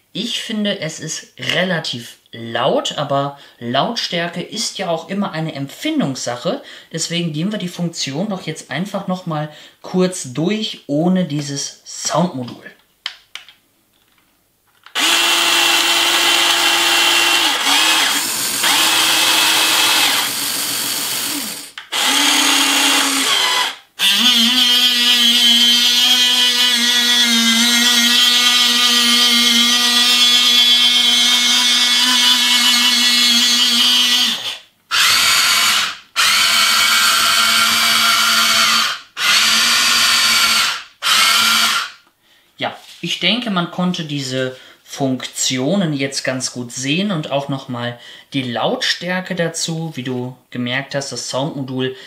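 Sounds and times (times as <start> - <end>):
toy excavator motors whining: 14.9 - 41.9.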